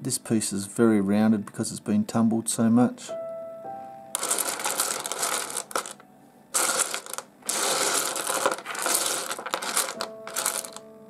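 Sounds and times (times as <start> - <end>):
stones clattering together: 4.2 - 6.0, 6.6 - 10.8.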